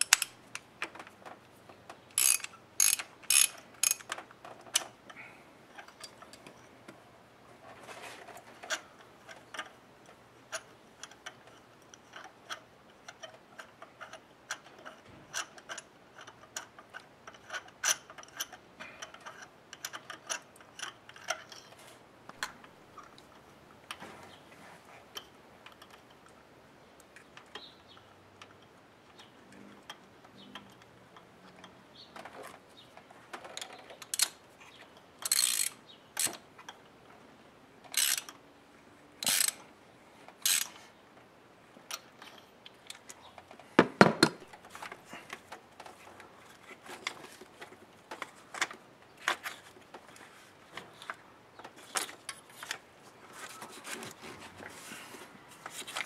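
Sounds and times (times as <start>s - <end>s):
plastic clicks and scrapes: 44.4s - 56.0s.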